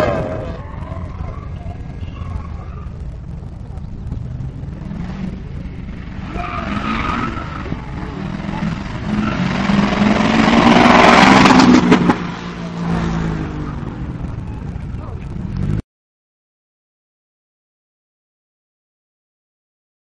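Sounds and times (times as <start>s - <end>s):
tyre noise: 0.0s - 15.8s
car engine revving hard: 4.6s - 14.1s.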